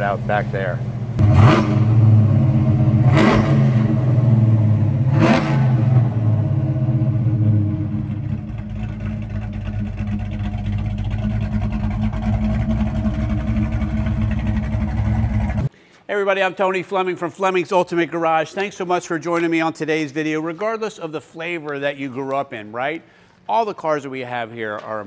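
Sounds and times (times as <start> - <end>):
car engine revving and idling: 0.0 - 15.7.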